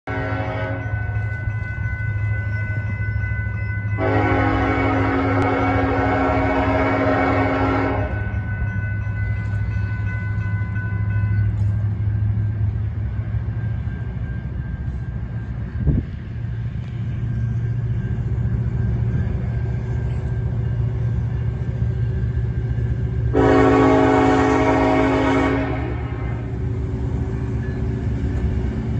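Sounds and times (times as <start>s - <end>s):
train rumbling: 0.0s - 28.9s
locomotive air horn chord: 0.1s - 1.0s, 4.0s - 8.3s, 23.3s - 26.5s.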